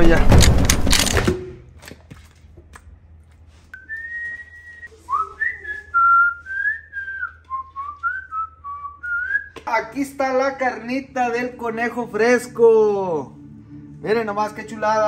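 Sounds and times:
man whistling a tune: 0:03.8 - 0:09.6.

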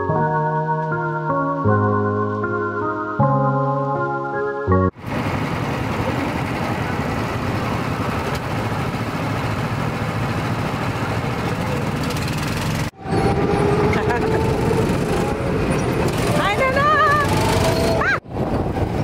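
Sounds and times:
go-kart engines running: 0:05.0 - 0:19.0.

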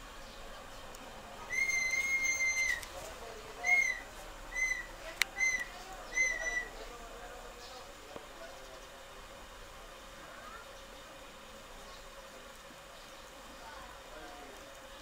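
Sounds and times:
high whistled notes: 0:01.5 - 0:02.8.

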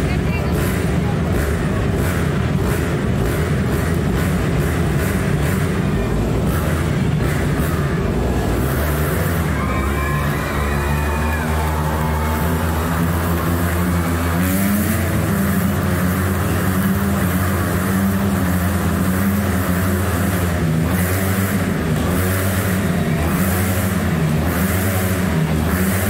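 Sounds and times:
motorcycle engines revving: 0:00.0 - 0:26.0.

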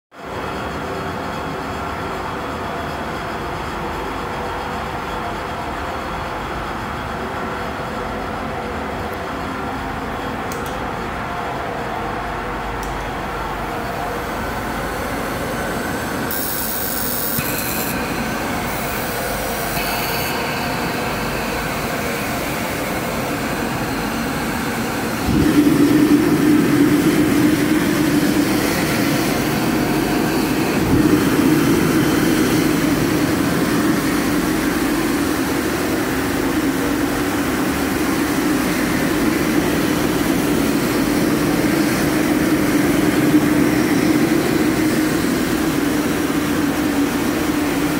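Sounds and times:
gas burner rumbling: 0:20.6 - 0:47.9.

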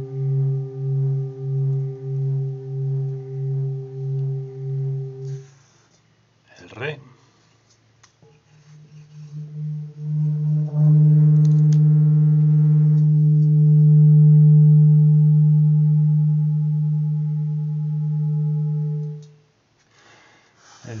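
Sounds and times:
singing bowl ringing: 0:00.0 - 0:05.5, 0:08.6 - 0:19.4.

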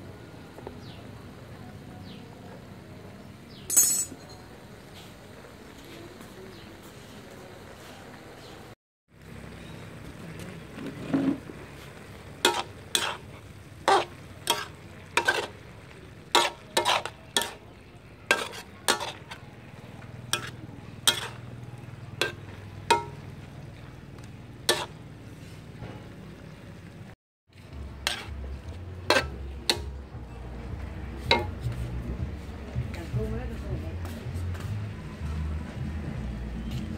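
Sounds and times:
food sizzling in a pan: 0:09.1 - 0:30.0
metal spatula scraping a wok: 0:10.9 - 0:21.6, 0:22.2 - 0:23.3, 0:24.2 - 0:26.0, 0:27.6 - 0:30.5, 0:31.2 - 0:32.0.

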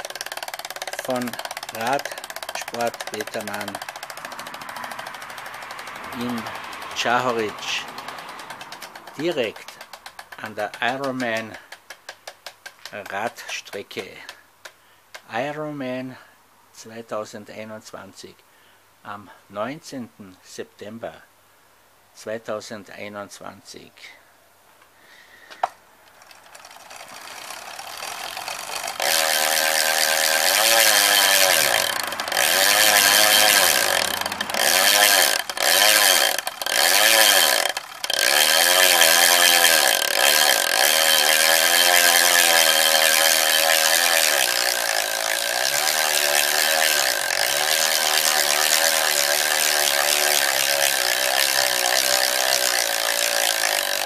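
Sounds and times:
bicycle freehub buzzing: 0:00.0 - 0:14.4, 0:26.0 - 0:54.0.

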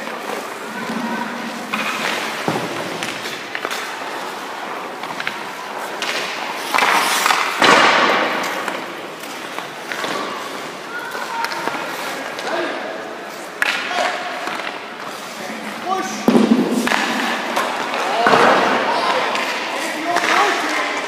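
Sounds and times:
skate blades scraping ice: 0:00.0 - 0:12.2
sharp knocks: 0:16.2 - 0:18.5.

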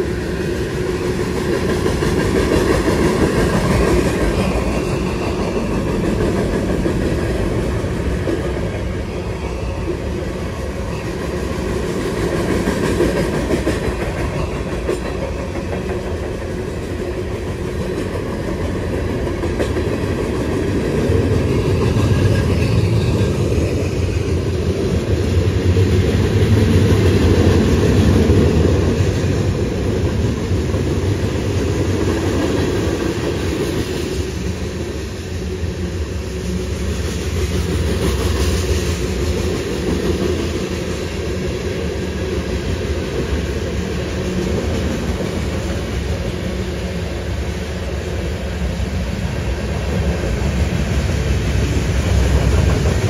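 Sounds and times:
freight train rolling past: 0:00.0 - 0:53.0.

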